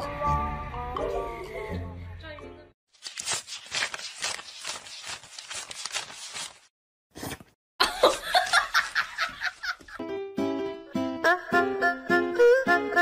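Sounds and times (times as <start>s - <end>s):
person laughing: 7.8s - 10.0s.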